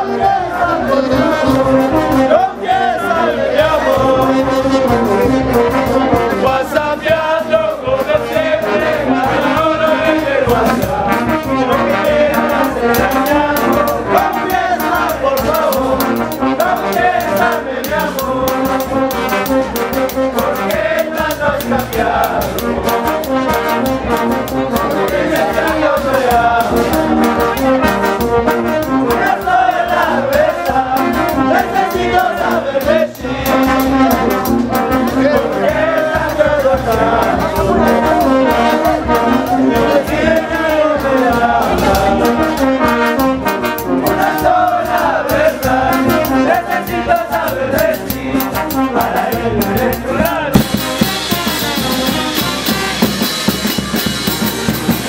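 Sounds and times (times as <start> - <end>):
brass band playing dance tune: 0.0 - 55.0
cymbal beat: 50.5 - 55.0.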